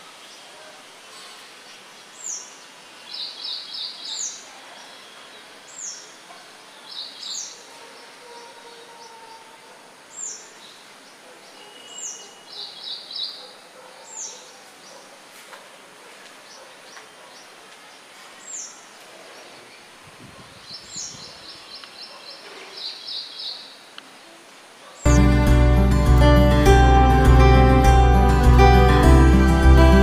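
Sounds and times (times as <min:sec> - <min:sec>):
steady outdoor hiss: 0:00.0 - 0:30.0
small birds calling: 0:00.1 - 0:15.3, 0:16.3 - 0:25.2.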